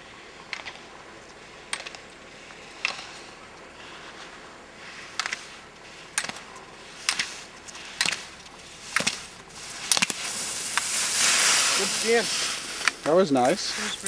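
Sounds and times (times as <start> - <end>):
skis scraping on hard snow: 6.8 - 14.0.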